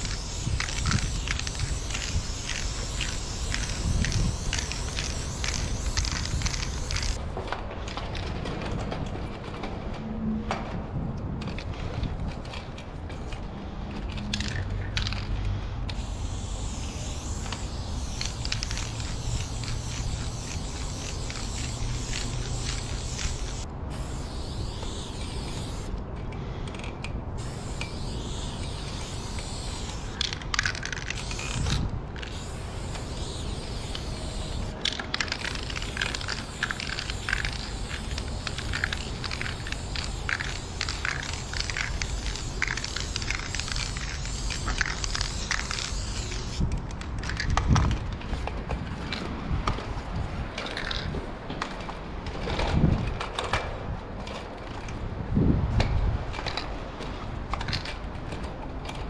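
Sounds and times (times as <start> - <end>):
aerosol spray can hissing: 0.0 - 7.2, 15.9 - 25.9, 27.4 - 46.6.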